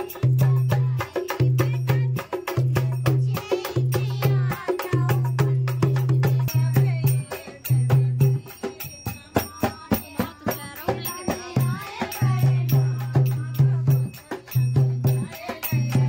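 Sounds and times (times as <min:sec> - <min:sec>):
dholak drum beating: 0:00.0 - 0:16.0
women singing: 0:00.0 - 0:16.0.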